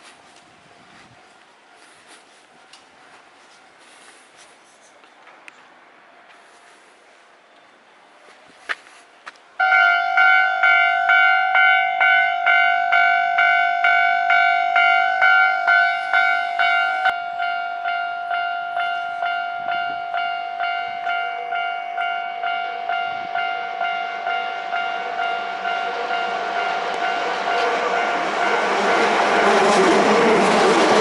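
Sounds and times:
electric train passing: 9.5s - 31.0s
level crossing bell ringing: 9.6s - 28.7s.

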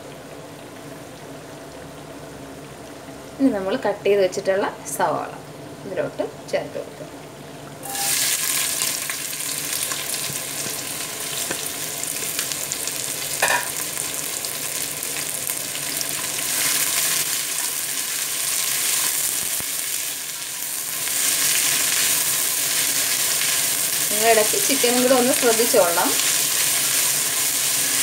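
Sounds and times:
chicken frying: 0.0s - 28.0s
onions sizzling in hot oil: 6.4s - 28.0s.

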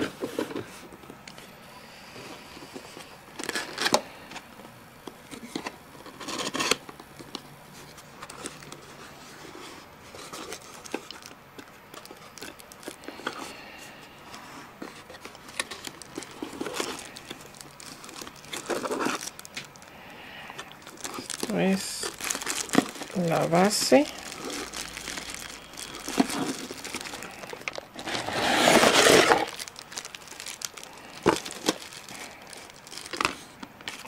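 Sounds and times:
plastic wrapping rustling: 0.0s - 34.0s
cardboard flaps scraping: 28.0s - 30.1s.

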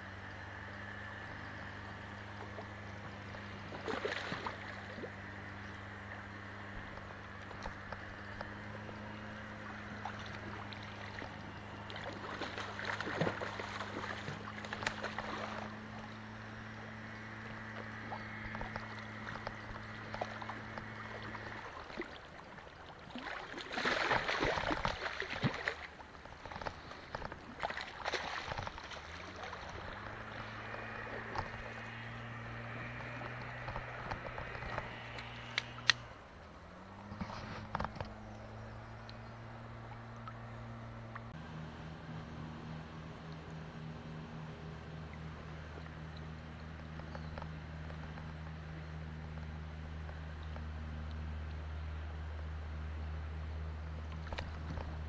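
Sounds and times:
low hum: 0.0s - 55.0s
river water running: 0.0s - 55.0s
fish splashing at surface: 3.7s - 5.1s, 23.1s - 25.9s, 26.6s - 35.9s.

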